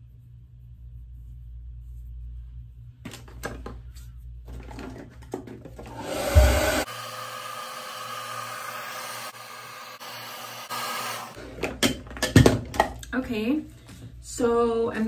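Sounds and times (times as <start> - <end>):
hair dryer blowing: 5.8 - 11.4.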